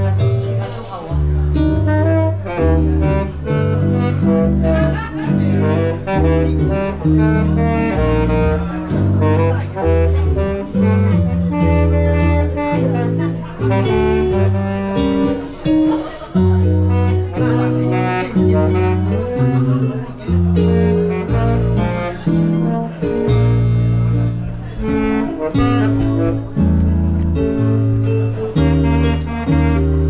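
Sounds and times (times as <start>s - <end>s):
instrumental music with bass line: 0.0s - 30.0s.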